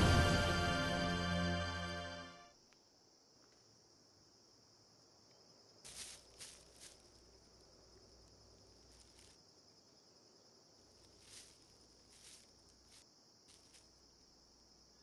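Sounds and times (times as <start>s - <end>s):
soft footsteps on grass: 5.8s - 9.6s, 10.8s - 14.2s.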